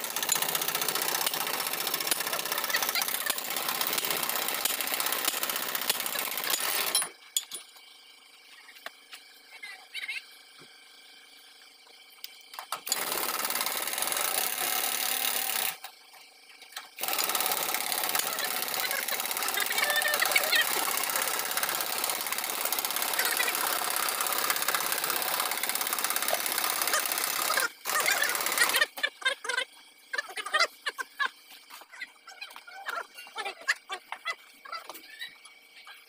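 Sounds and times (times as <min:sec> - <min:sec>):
harsh noisy machine running: 0:00.0 - 0:07.0, 0:12.8 - 0:15.8, 0:17.0 - 0:29.0.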